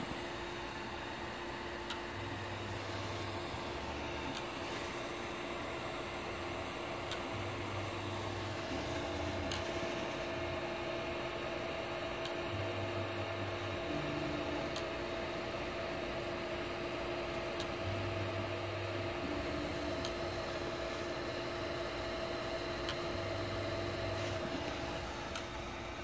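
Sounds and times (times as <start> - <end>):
fan humming: 0.0 - 26.0
probe clicking: 19.9 - 20.2.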